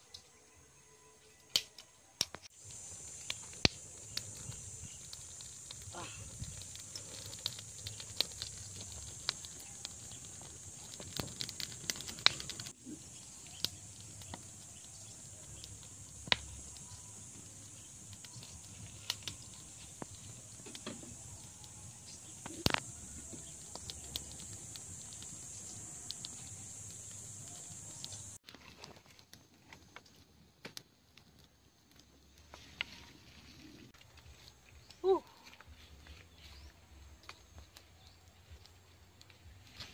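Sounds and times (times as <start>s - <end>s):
campfire crackling and popping: 1.4s - 39.9s
steady high hiss: 2.1s - 28.4s.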